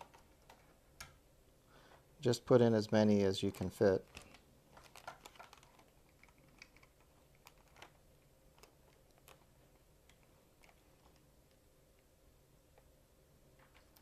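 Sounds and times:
faint plastic clicks: 2.8s - 12.1s.

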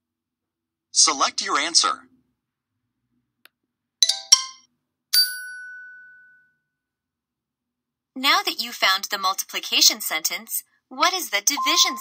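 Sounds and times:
bell-like chime: 5.2s - 6.7s, 11.6s - 12.0s.

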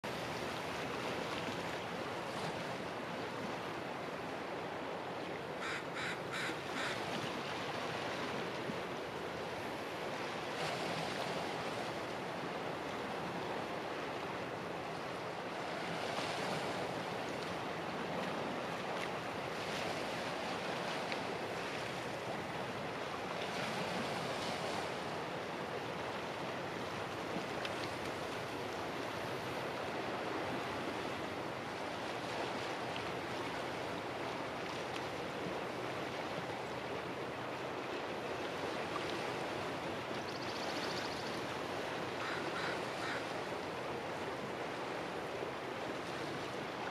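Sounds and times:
small waves washing: 0.0s - 46.9s
bird calling: 5.6s - 7.0s, 42.2s - 43.3s.

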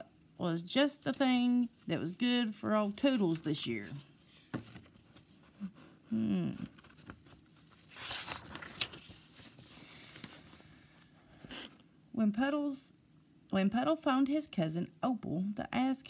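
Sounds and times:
book pages rustling: 3.0s - 5.7s, 6.6s - 11.9s.

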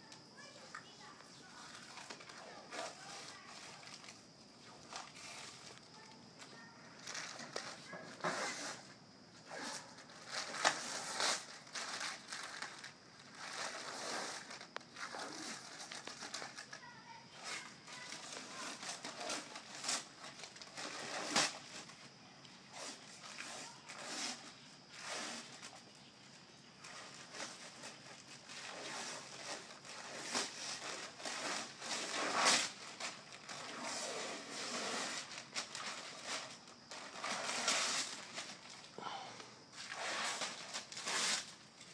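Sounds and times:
paper peeling and tearing: 10.2s - 16.7s, 17.4s - 21.9s, 22.7s - 25.6s, 26.9s - 38.8s, 39.8s - 41.6s.

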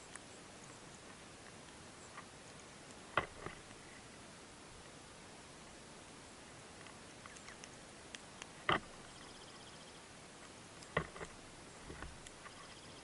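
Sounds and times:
birds pecking ticks: 0.0s - 13.0s
high rapid bird trill: 9.0s - 10.0s.

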